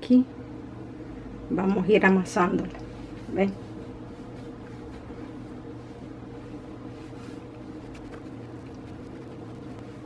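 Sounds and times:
low background hum: 0.0s - 10.0s
hands kneading dough: 2.8s - 10.0s.

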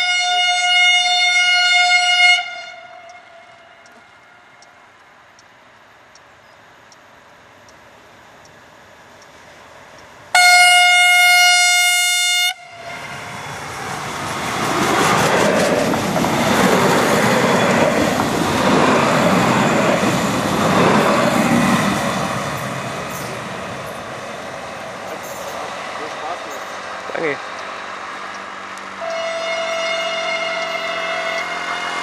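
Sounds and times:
train horn blast: 0.0s - 4.6s, 10.3s - 13.3s, 28.9s - 32.0s
train passing with rail clatter: 0.1s - 32.0s.

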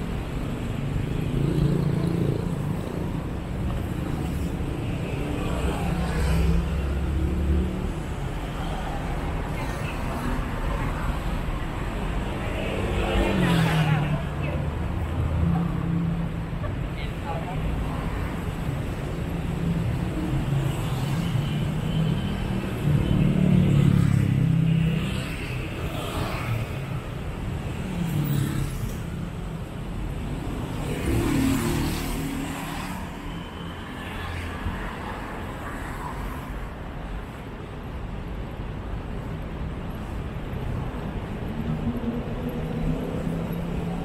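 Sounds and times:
vehicles passing close by: 0.0s - 44.0s.

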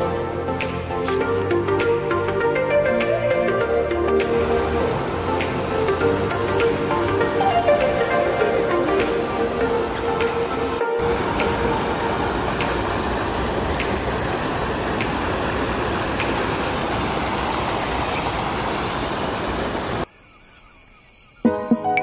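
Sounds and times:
water rushing over a drop: 3.0s - 20.0s.

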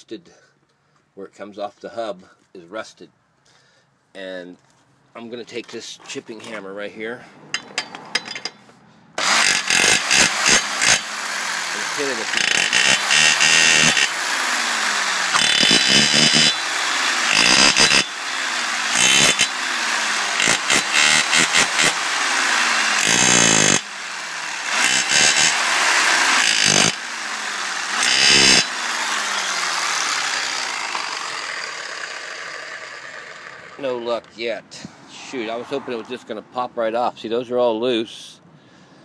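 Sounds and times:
electric chipping hammer pounding metal: 9.2s - 33.9s
motor winding down: 9.2s - 34.0s.

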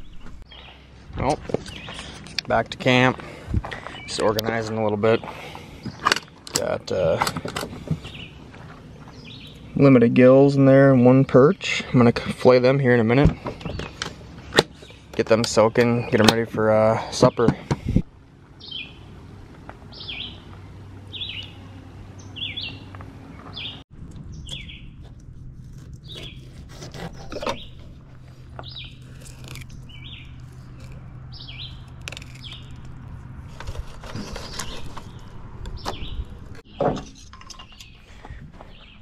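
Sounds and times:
steady low hum: 0.0s - 36.6s
songbird falling chirp: 19.9s - 25.0s, 28.6s - 33.0s, 34.2s - 38.0s.

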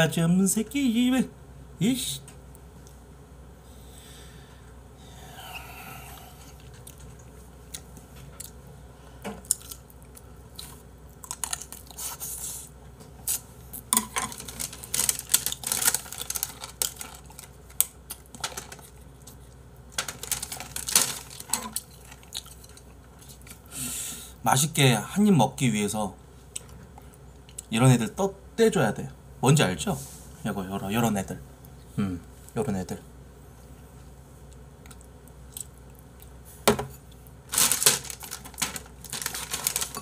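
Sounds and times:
person chewing food: 5.5s - 23.7s, 26.5s - 27.7s, 34.4s - 36.4s.

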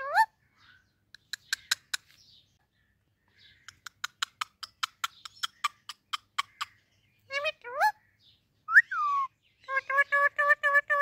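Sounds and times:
parrot clicking: 3.7s - 6.5s.

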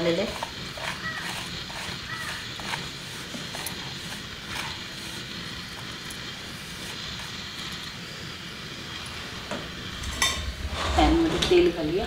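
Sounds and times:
fingers scraping flour on steel: 0.0s - 7.7s
steady hiss: 0.0s - 12.0s.

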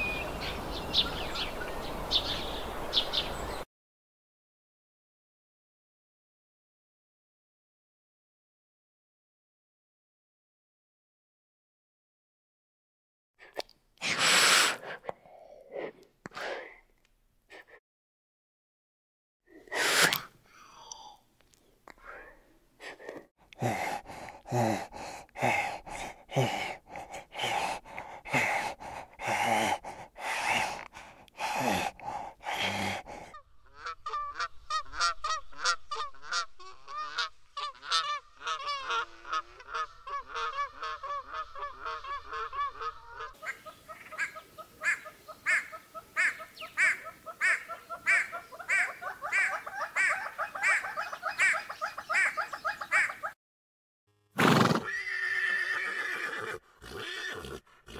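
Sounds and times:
birds chattering calls: 0.0s - 3.6s, 33.6s - 53.4s
rapid series of bird calls: 0.0s - 3.6s, 32.4s - 53.4s
birds honking calls: 33.4s - 53.4s.

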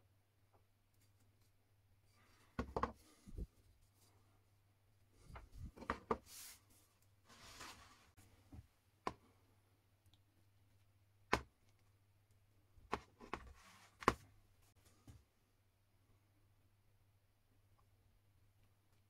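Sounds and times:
rustling scrapes: 5.6s - 8.2s.

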